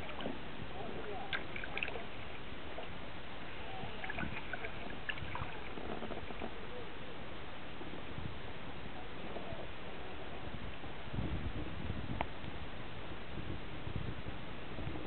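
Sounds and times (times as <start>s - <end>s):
paddle splashing and dripping: 0.0s - 6.6s
steady background hiss: 0.0s - 15.0s.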